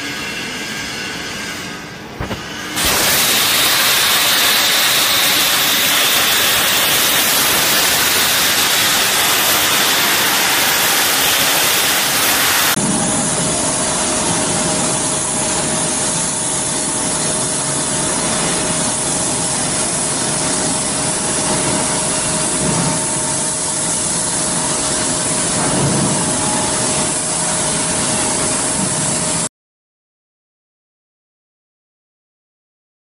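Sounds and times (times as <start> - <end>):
torch cutting steel hiss: 1.2 - 12.8.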